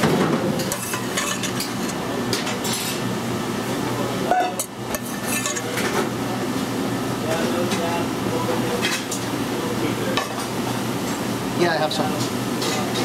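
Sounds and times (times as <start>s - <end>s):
metal spoon scraping a pan: 0.6s - 2.0s, 5.0s - 5.8s.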